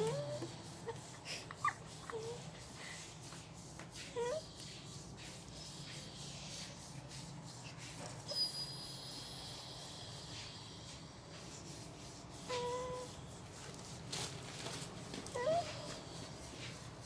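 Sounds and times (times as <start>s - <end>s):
dog whining: 0.0s - 2.4s, 4.1s - 4.6s, 12.4s - 13.2s, 15.2s - 16.2s.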